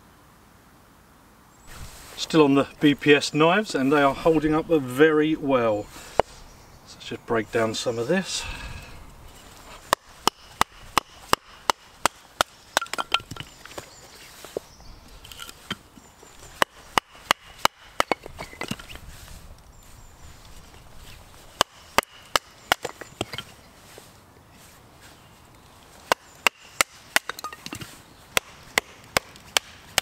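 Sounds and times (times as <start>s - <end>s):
baton knocking knife through wood: 9.9s - 13.8s, 16.5s - 18.9s, 21.5s - 23.5s, 26.1s - 30.0s.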